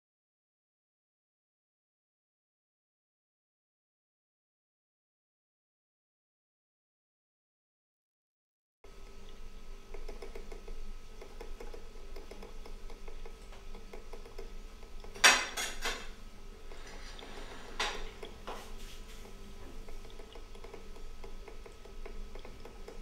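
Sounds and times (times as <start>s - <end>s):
low background hum: 8.9s - 23.0s
cutlery and dishes clinking: 15.2s - 16.2s.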